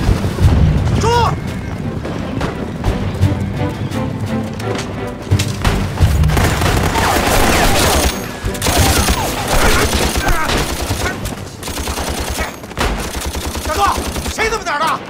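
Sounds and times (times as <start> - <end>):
rapid machine gun fire: 6.3 - 14.4.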